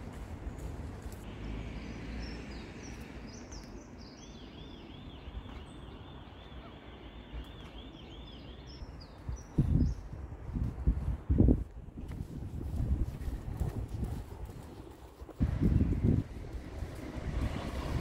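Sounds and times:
low city rumble: 0.0s - 18.0s
small birds chirping: 0.4s - 10.2s.

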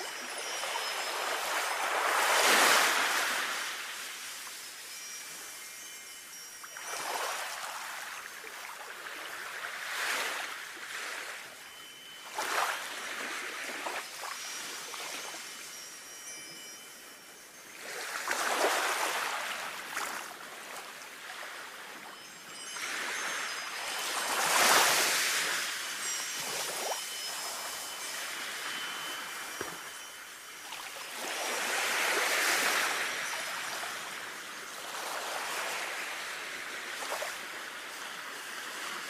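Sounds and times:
sea waves washing: 0.0s - 11.5s, 22.5s - 39.0s
faint wind bells tinkling: 0.0s - 39.0s.

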